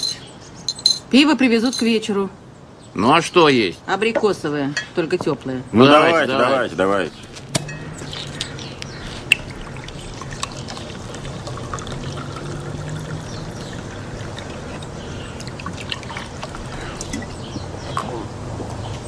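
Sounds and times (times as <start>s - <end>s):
glasses clinking: 0.0s - 2.1s, 7.5s - 8.5s, 10.1s - 17.4s
soda pouring into glasses: 9.4s - 17.4s.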